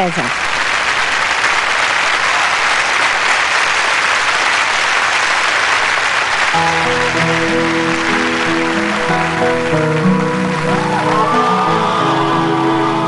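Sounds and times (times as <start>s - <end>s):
studio audience applauding: 0.0s - 13.0s
band instrumental intro: 6.5s - 13.0s.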